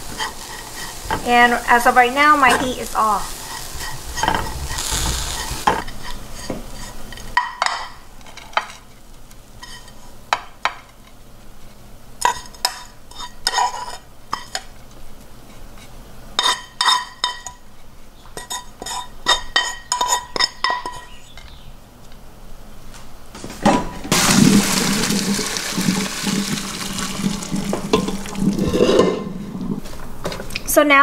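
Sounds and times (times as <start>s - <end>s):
metal spoon scraping frying pan: 0.0s - 1.2s, 2.4s - 7.2s, 27.9s - 29.8s
faint sizzle: 0.0s - 7.1s, 24.1s - 31.0s.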